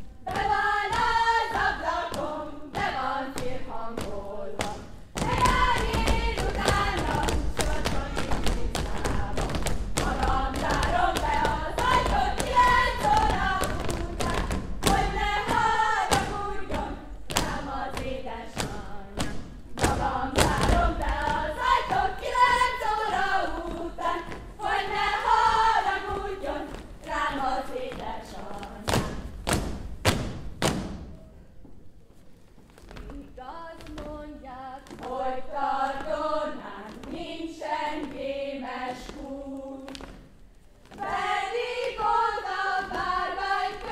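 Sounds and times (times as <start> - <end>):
group singing folk song: 0.0 - 29.8, 33.5 - 43.9
dancers stamping on stage: 0.2 - 31.2, 32.6 - 43.9.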